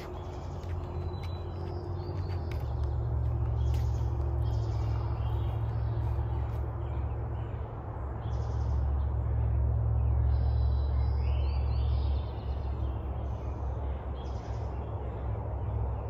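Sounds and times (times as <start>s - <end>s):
bird calls and trills: 0.0s - 16.0s
steady low rumble: 0.0s - 16.0s.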